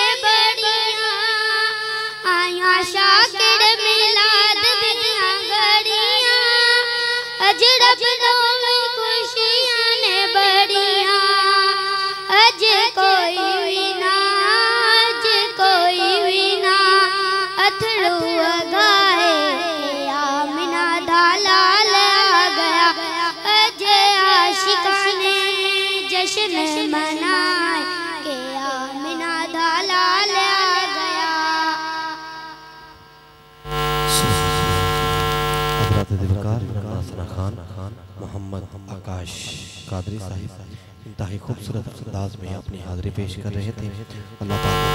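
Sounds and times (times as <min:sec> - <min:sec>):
boy singing into microphone: 0:00.0 - 0:32.6
faint steady hum: 0:25.6 - 0:44.9
loud steady buzz: 0:30.8 - 0:41.2, 0:42.4 - 0:44.9.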